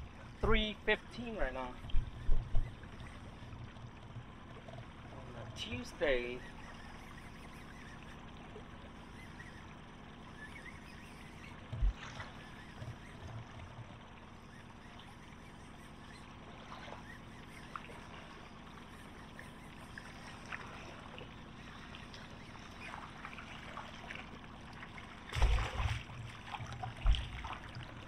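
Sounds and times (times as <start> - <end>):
water lapping around boat: 0.0 - 28.0
low thumps: 11.7 - 12.1.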